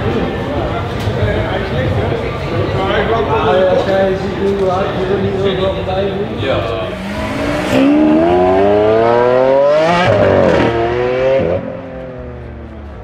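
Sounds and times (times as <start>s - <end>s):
rotary engine revving: 6.9s - 11.6s.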